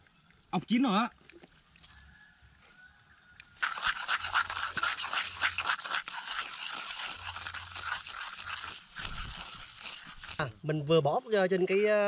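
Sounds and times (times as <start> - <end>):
oil sizzling and crackling: 3.5 - 10.6.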